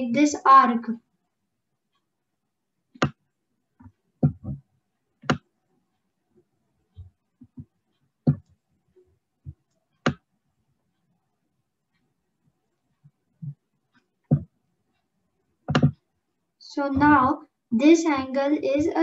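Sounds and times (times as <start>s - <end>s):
computer mouse clicks: 2.9s - 3.2s, 5.2s - 5.5s, 9.5s - 10.3s.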